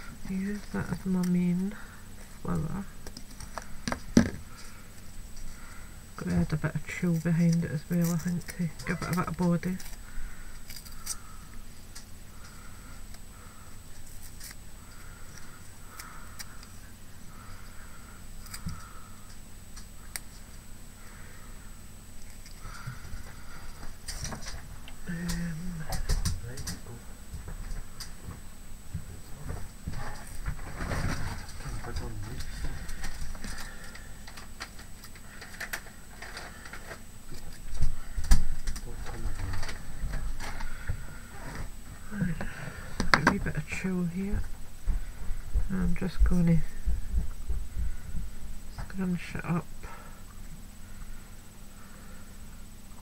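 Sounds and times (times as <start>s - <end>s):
low steady hum: 0.0s - 53.0s.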